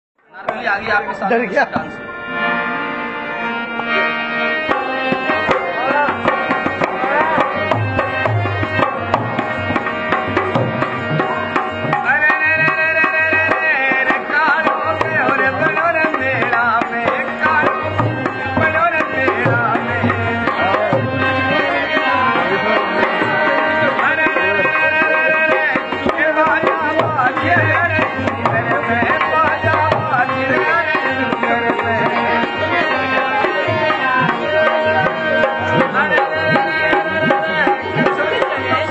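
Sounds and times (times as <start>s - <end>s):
wavering folk melody: 0.4s - 38.9s.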